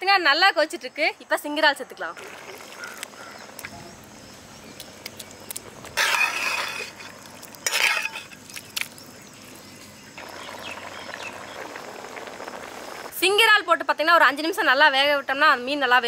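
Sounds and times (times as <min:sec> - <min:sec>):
gravy bubbling: 0:05.3 - 0:13.1
ladle stirring against pot: 0:06.0 - 0:08.7.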